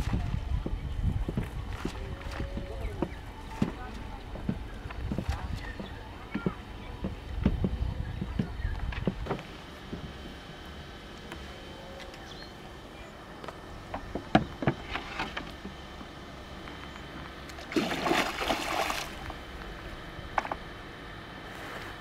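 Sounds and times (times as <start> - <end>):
water sloshing: 17.4 - 19.6.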